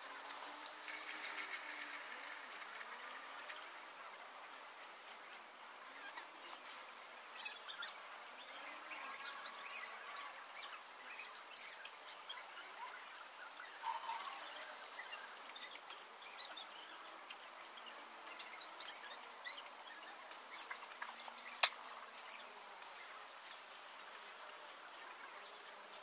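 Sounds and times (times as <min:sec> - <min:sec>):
light hiss: 0:00.0 - 0:26.0
sped-up pencil squeaks and ticks: 0:05.9 - 0:23.1.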